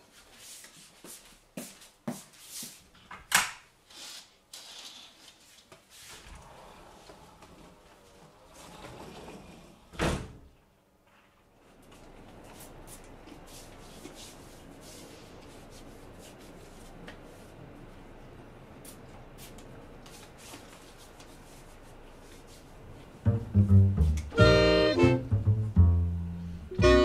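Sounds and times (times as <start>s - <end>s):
sliding door rush: 6.0s - 10.5s.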